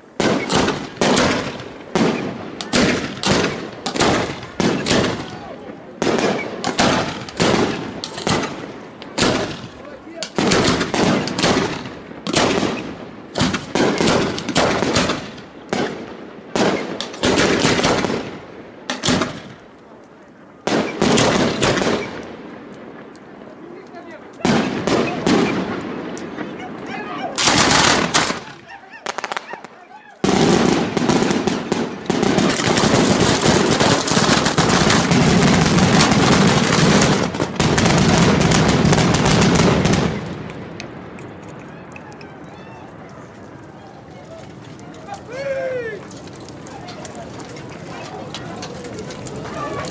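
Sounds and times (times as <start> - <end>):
firework shells bursting: 0.1 - 5.3, 6.0 - 19.8, 27.4 - 41.7.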